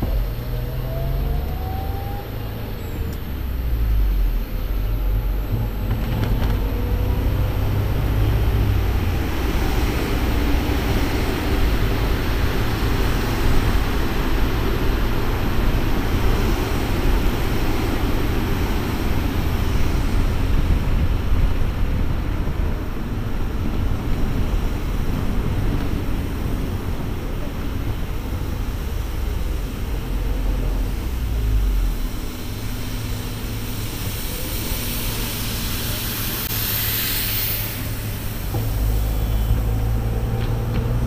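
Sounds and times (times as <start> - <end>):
car engine accelerating: 0.0 - 22.3, 23.5 - 41.0
wind noise: 0.0 - 41.0
tyre noise: 38.4 - 41.0.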